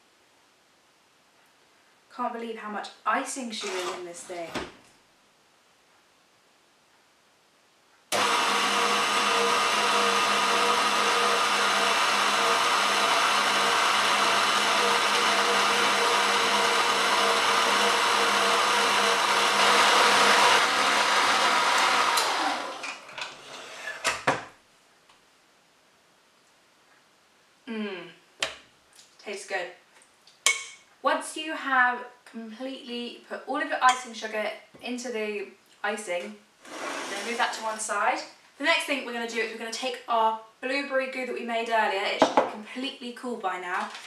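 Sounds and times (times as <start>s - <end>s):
stand mixer motor hum: 8.2s - 22.9s.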